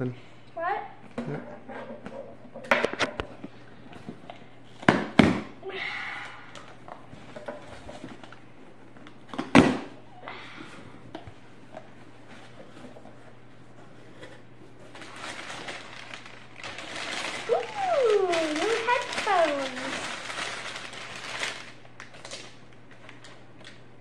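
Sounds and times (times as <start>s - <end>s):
rustling cardboard: 12.0s - 21.7s.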